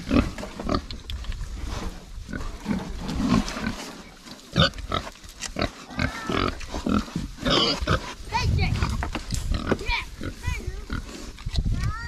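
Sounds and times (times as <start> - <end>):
pigs grunting: 0.0 - 1.0, 1.6 - 11.4
pigs chewing and snuffling: 0.0 - 12.0.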